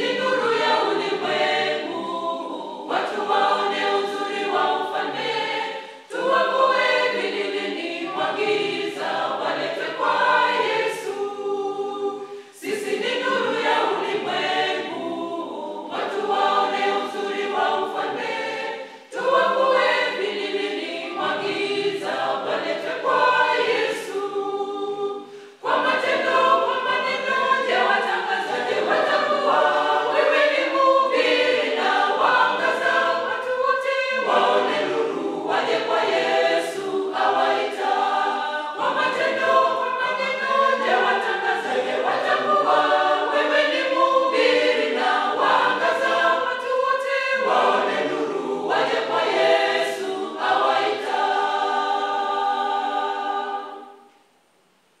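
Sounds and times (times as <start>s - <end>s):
choir singing a cappella: 0.0s - 54.4s.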